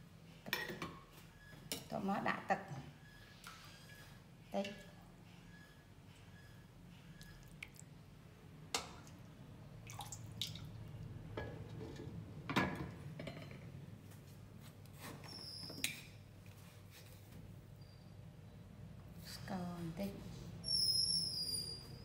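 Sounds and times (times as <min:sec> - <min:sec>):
water dripping and sloshing in a pot: 0:07.1 - 0:13.0.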